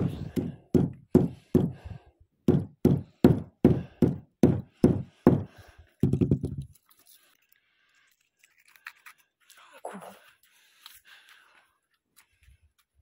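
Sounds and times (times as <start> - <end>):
hammer pounding on wood board: 0.0 - 1.8, 2.5 - 6.6.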